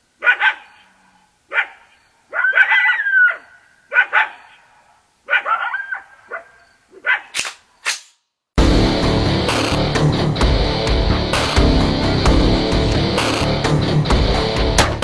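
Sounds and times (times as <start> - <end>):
dog barking: 0.2 - 0.8, 1.5 - 7.4
sharp crack: 7.3 - 8.3.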